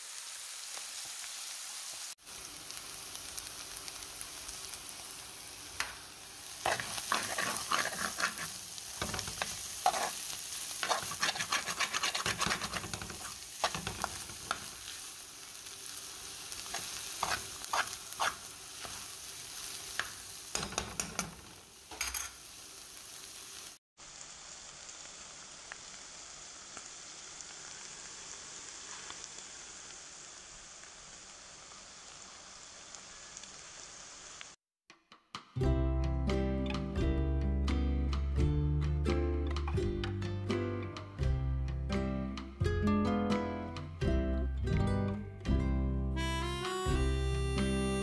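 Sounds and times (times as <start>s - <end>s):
food sizzling in a frying pan: 0.0s - 34.6s
spoon stirring and scraping: 6.6s - 15.0s, 16.6s - 19.1s.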